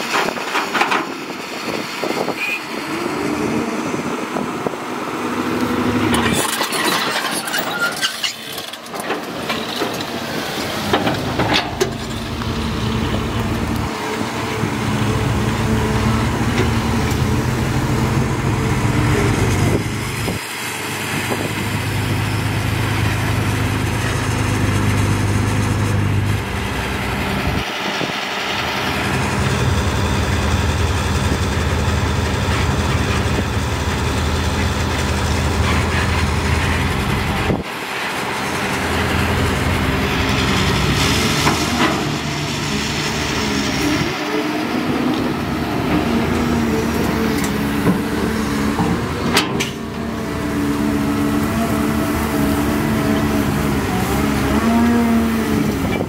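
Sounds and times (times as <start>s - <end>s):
excavator diesel engine working: 0.0s - 56.0s
soil rattling and scraping: 6.0s - 37.7s.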